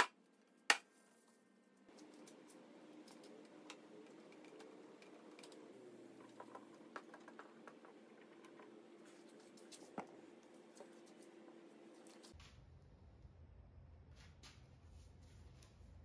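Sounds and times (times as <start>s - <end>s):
wooden blocks tapping and clicking: 6.2s - 8.8s.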